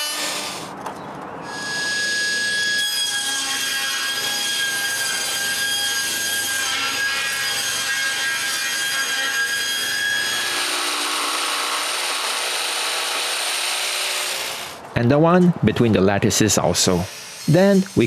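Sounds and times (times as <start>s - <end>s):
table saw cutting board: 0.0s - 0.6s, 1.5s - 14.8s.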